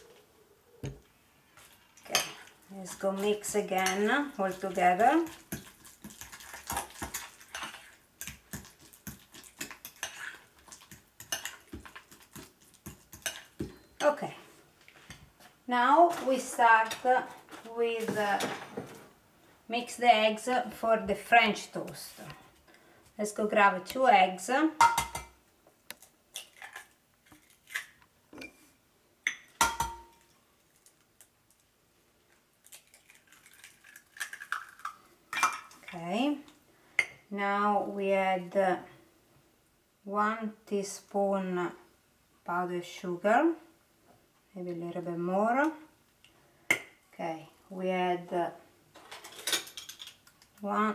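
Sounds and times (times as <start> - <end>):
fork scraping glass bowl: 9.4 - 10.5
eggshells cracking: 32.6 - 35.0.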